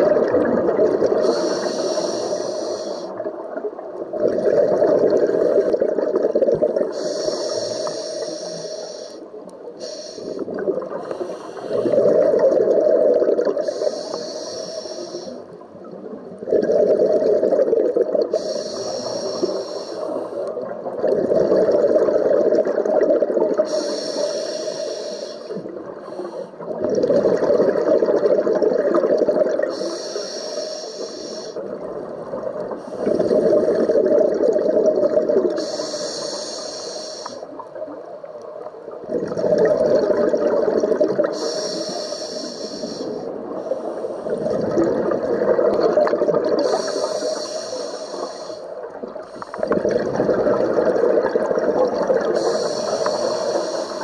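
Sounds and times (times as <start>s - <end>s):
exhaled bubbles rushing: 0.0s - 1.5s, 3.2s - 7.0s, 10.4s - 11.1s, 11.7s - 13.8s, 15.9s - 18.3s, 20.6s - 23.7s, 26.6s - 29.7s, 31.6s - 35.6s, 39.0s - 41.4s, 44.2s - 46.8s, 48.8s - 53.3s
regulator inhalation hiss: 1.2s - 3.2s, 6.8s - 12.1s, 13.6s - 15.6s, 18.3s - 20.6s, 23.6s - 26.6s, 29.6s - 31.7s, 35.5s - 37.6s, 41.3s - 44.6s, 46.6s - 49.8s, 52.2s - 54.0s.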